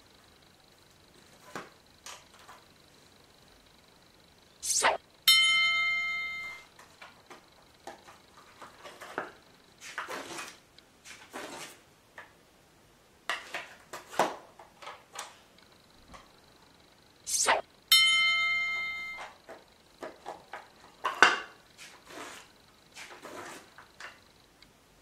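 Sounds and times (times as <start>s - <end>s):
quick swish: 4.6s - 5.0s, 17.3s - 17.6s
bright ringing chime: 5.3s - 6.7s, 17.9s - 19.4s
paper and plastic rustling: 7.9s - 11.8s.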